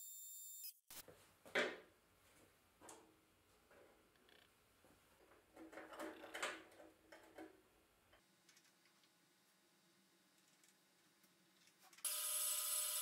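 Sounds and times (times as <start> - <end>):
metal tubes knocking and scraping: 5.2 - 7.6.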